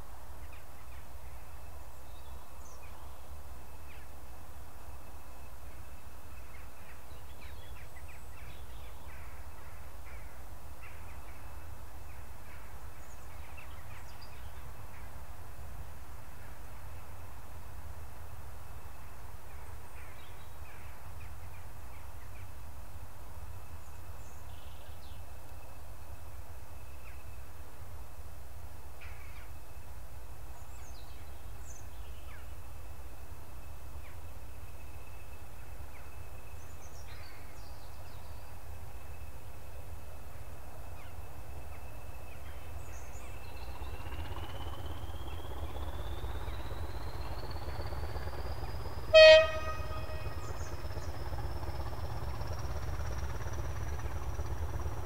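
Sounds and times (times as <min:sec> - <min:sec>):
train approaching: 0:38.6 - 0:55.0
bird calls: 0:41.0 - 0:55.0
steady low rumble: 0:41.0 - 0:55.0.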